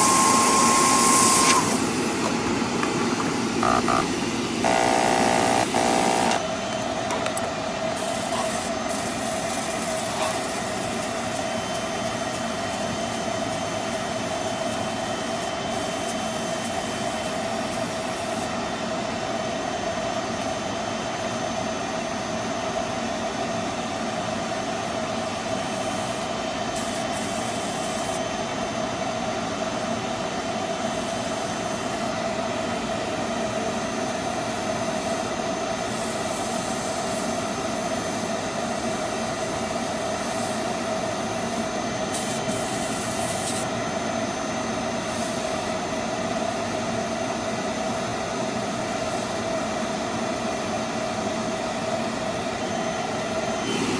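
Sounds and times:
machine motor drone: 0:00.0 - 0:07.4, 0:53.2 - 0:53.9
spray gun hiss: 0:08.0 - 0:13.2, 0:26.8 - 0:28.2, 0:41.4 - 0:43.6, 0:53.5 - 0:53.9.

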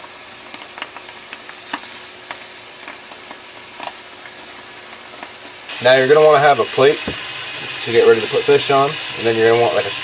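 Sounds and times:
fish deep-frying in oil: 0:00.0 - 0:10.0
oil crackling and popping: 0:00.0 - 0:10.0.

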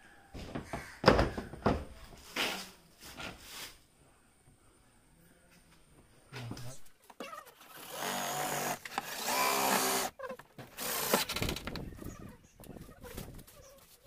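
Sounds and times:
cordless drill whining: 0:07.7 - 0:10.1, 0:10.8 - 0:11.7.

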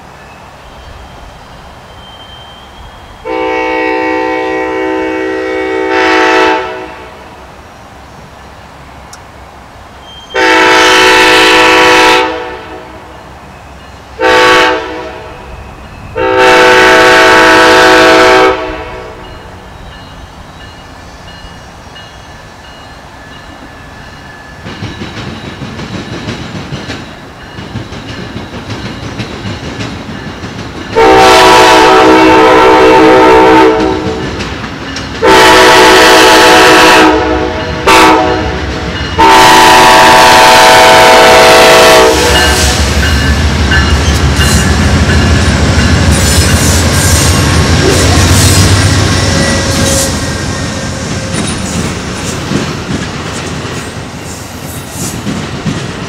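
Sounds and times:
train rumble: 0:00.0 - 0:56.0
locomotive air horn blasts: 0:03.2 - 0:07.3, 0:10.3 - 0:13.1, 0:14.2 - 0:15.5, 0:16.2 - 0:19.3, 0:31.0 - 0:34.2, 0:35.2 - 0:43.2, 0:47.8 - 0:51.2.

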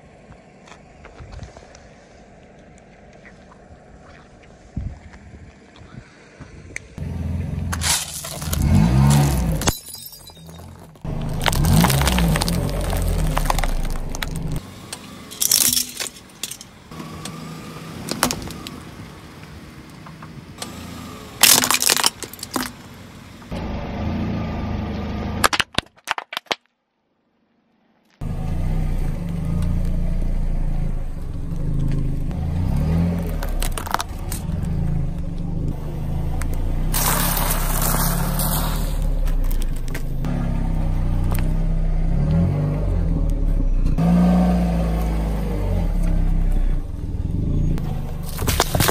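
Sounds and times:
car engine humming: 0:00.0 - 0:25.6, 0:28.2 - 0:48.9
tyre crushing objects on asphalt: 0:07.7 - 0:14.6, 0:21.4 - 0:23.0, 0:25.4 - 0:26.7, 0:31.8 - 0:34.7, 0:36.4 - 0:40.3, 0:47.8 - 0:48.9.

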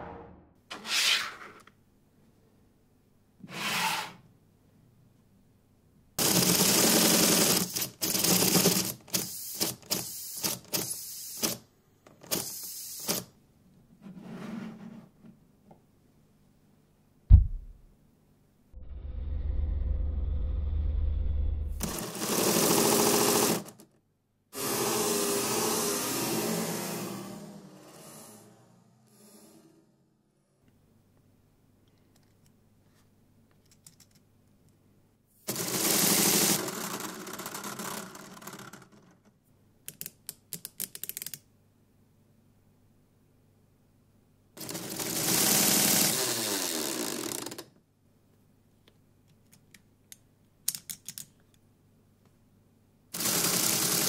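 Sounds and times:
loud low thump: 0:00.0 - 0:00.6, 0:17.3 - 0:17.9
low rumbling drone: 0:18.8 - 0:21.8
sharp plastic clicks: 0:39.8 - 0:41.5, 0:49.3 - 0:51.4.

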